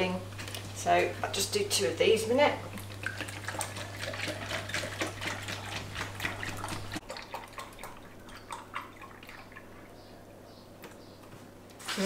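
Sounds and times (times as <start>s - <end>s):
drips and dribbles: 2.7s - 11.3s
milk pouring into a jug: 2.8s - 10.3s.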